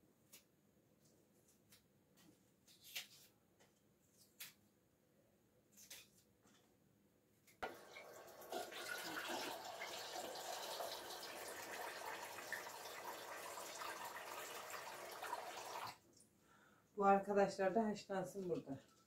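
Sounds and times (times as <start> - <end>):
tap water running into steel pot: 7.6 - 16.0.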